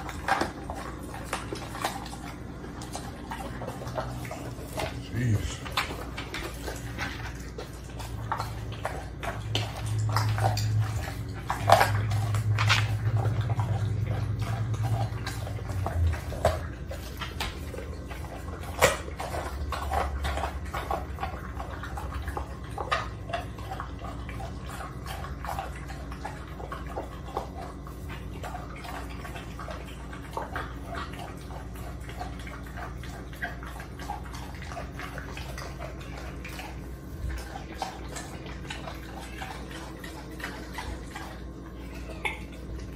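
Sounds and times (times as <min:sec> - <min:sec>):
bones crunching and cracking: 0:00.0 - 0:27.6
dog chewing and smacking: 0:00.0 - 0:42.9
low steady rumble: 0:00.0 - 0:42.9.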